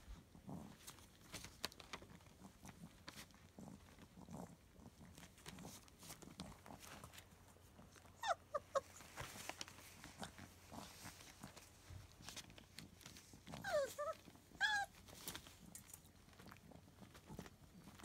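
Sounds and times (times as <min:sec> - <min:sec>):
puppy paws rustling on newspaper: 0:00.0 - 0:18.0
puppies whimpering: 0:08.2 - 0:09.1, 0:13.6 - 0:15.0.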